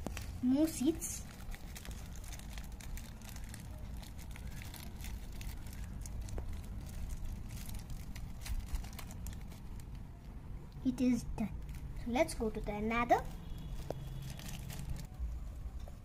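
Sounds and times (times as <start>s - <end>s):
plastic packet crinkling: 0.0s - 10.2s, 13.4s - 15.1s.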